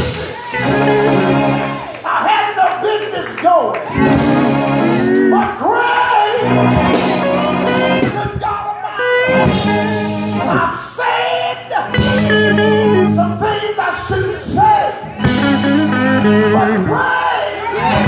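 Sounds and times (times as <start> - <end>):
held instrument chords: 0.0 - 2.0, 3.9 - 5.6, 6.3 - 10.9, 11.7 - 13.8, 14.9 - 18.0.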